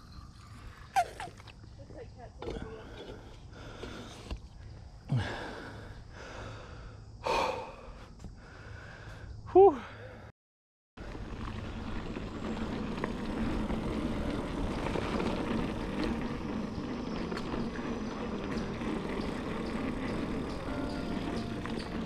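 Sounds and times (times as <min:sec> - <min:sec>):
bike rattling and clicking: 0:11.0 - 0:22.0
bike tyres rumbling on dirt: 0:11.0 - 0:22.0.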